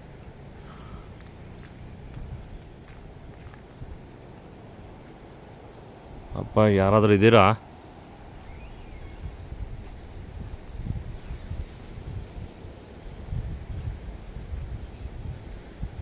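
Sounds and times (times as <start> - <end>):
low rumble: 0.0 - 7.0
cricket chirping: 0.0 - 16.0.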